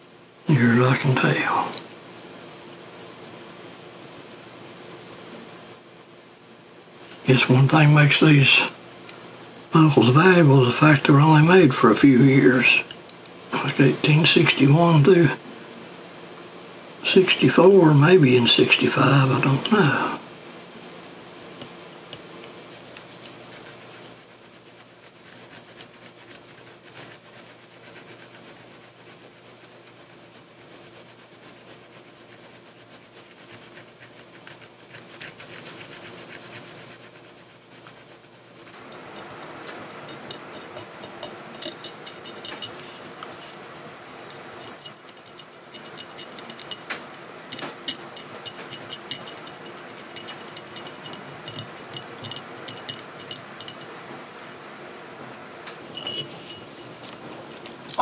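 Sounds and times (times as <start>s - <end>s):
small scraping ticks: 5.0s - 5.5s, 21.0s - 54.5s
scratchy rubbing on soil: 9.7s - 12.9s, 13.5s - 15.4s, 17.0s - 20.2s, 21.4s - 54.0s.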